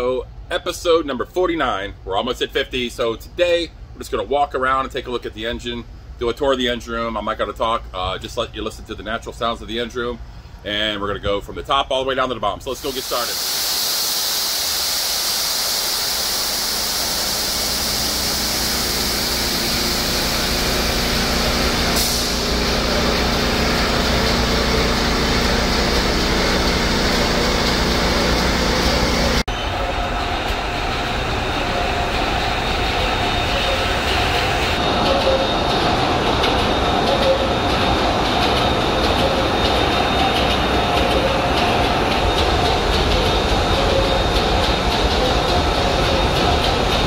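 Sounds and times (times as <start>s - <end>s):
low machinery hum with tones: 0.0s - 47.0s
ship engine room din: 0.0s - 47.0s
strong hiss: 12.7s - 29.4s.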